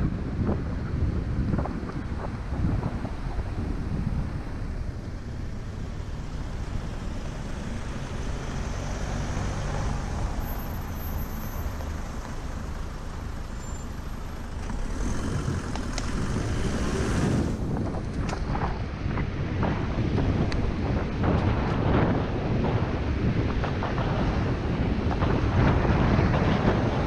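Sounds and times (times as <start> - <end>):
motor traffic: 0.0 - 27.0
wind rushing over microphone: 0.0 - 27.0
light ticks: 15.7 - 16.1.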